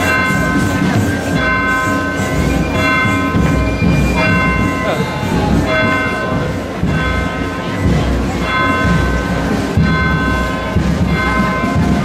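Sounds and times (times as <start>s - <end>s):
murmur of street crowd: 0.0s - 12.0s.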